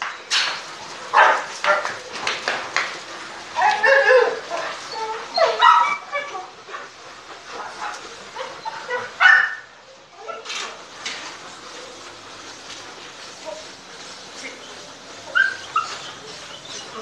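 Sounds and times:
dog barking: 1.1 - 1.9, 7.7 - 10.5.

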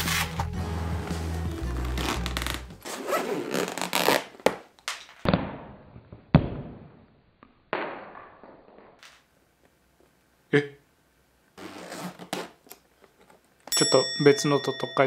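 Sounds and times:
zipper being drawn: 0.0 - 0.5, 1.6 - 4.5, 11.6 - 12.7.

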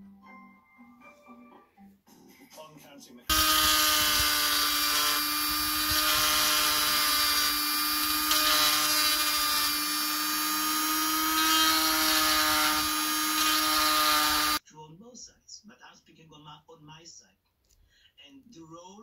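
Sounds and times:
rotary tool grinding antler: 3.3 - 14.6.

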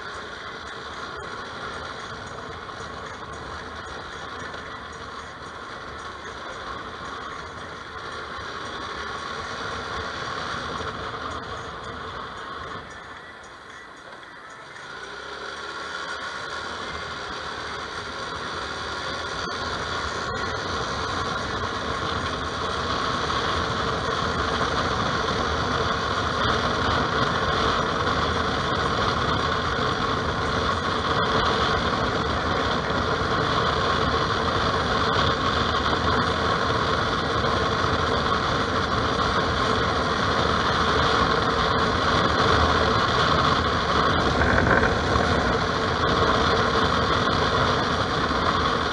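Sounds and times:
motorcycle engine and road noise: 0.0 - 48.9
wind on microphone: 20.2 - 48.9.

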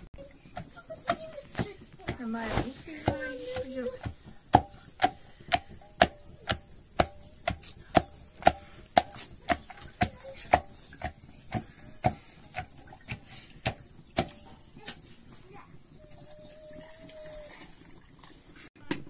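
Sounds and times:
wooden stick knocking metal cup: 3.0 - 15.0.

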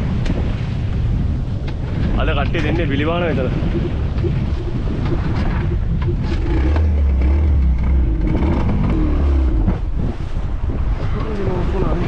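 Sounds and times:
outboard motor running: 4.1 - 9.9.

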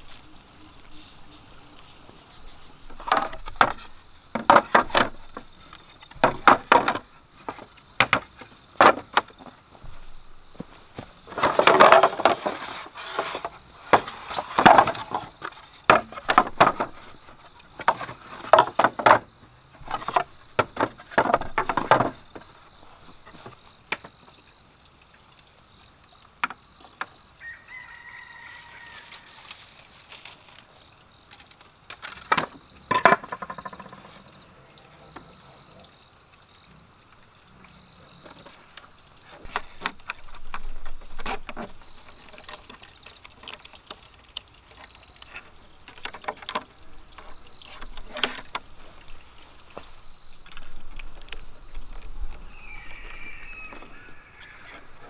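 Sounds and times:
bamboo strip scraping rustle: 0.0 - 23.9, 27.4 - 34.3, 38.2 - 55.0
bamboo poles knocking: 2.9 - 9.6, 10.6 - 22.5, 31.9 - 34.2, 44.8 - 48.7
rooster crowing: 27.4 - 29.4, 52.5 - 55.0.

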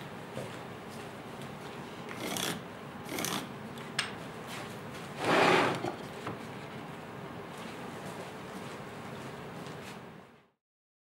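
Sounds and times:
wood strips scraping on workbench: 5.2 - 6.1.

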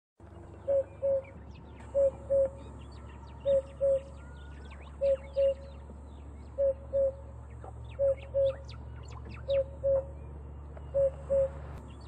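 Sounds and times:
small birds chirping: 0.2 - 12.0
cuckoo calling two-note hoots: 0.6 - 2.7, 3.4 - 5.8, 6.6 - 7.2, 7.9 - 11.7.

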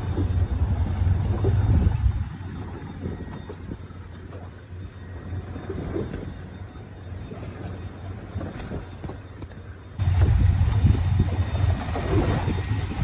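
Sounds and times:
wind buffeting microphone: 0.0 - 4.4, 10.0 - 13.0
water moving around hull: 0.0 - 13.0.

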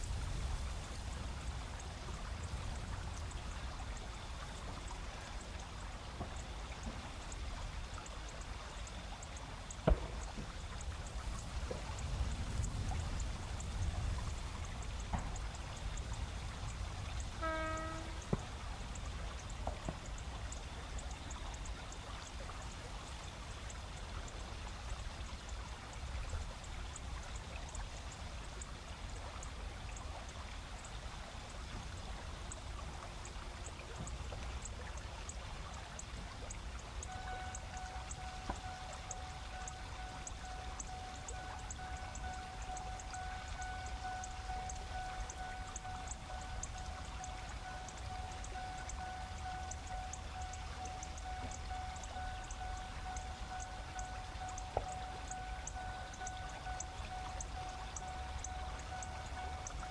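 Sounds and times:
insects chirping: 0.0 - 59.9.

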